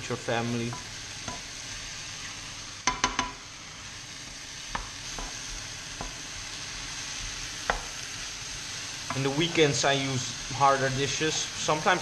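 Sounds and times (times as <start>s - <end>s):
vegetables sizzling in a pan: 0.0s - 12.0s
spatula knocking against pan: 2.8s - 3.4s.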